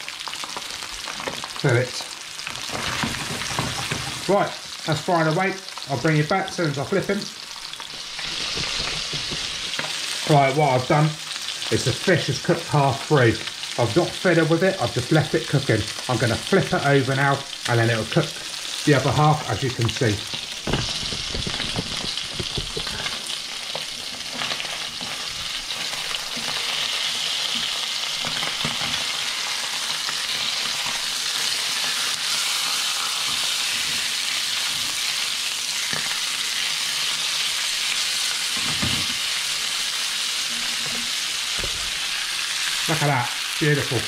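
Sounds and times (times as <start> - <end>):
fish sizzling in oil: 0.0 - 44.0
spatula knocks: 8.4 - 9.8, 20.6 - 23.2.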